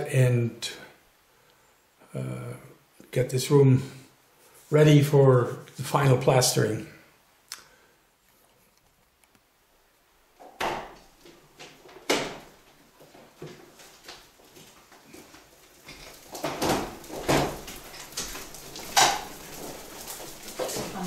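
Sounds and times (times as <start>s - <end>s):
knocks and clatters: 10.4s - 21.0s
trolley wheels rumbling: 11.2s - 21.0s.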